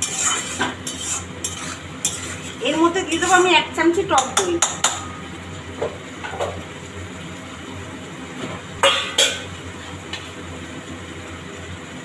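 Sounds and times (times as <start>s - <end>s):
metal spoon clinking on cookware: 0.0s - 5.2s.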